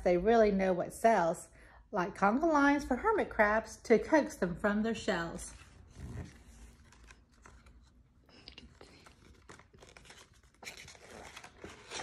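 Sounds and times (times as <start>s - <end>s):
paper pages rustling: 5.4s - 12.0s.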